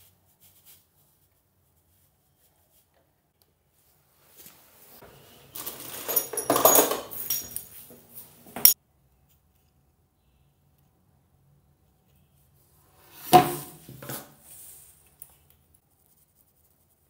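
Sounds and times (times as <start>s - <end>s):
metal hand tools clinking: 5.6s - 7.7s.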